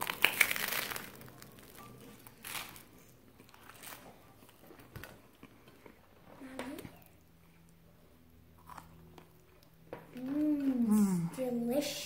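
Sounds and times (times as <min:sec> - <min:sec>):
person chewing: 0:00.0 - 0:06.0, 0:08.5 - 0:09.8.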